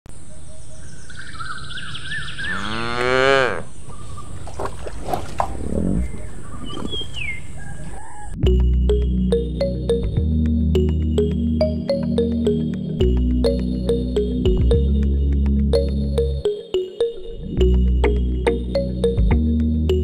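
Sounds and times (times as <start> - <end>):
cow mooing: 2.5 - 3.7.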